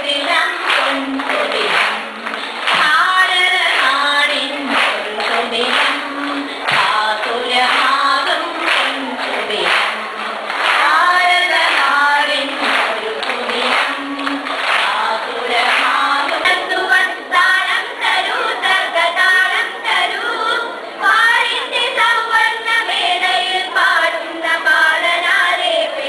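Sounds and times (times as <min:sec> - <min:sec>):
children singing in unison: 0:00.0 - 0:26.0.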